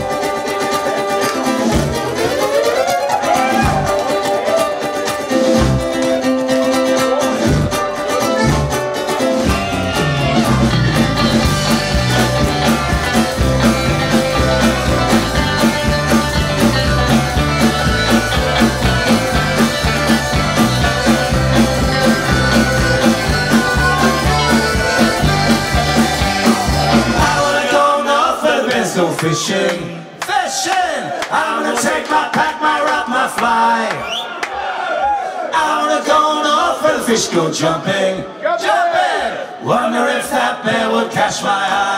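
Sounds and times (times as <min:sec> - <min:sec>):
live folk-rock band playing: 0:00.0 - 0:30.2.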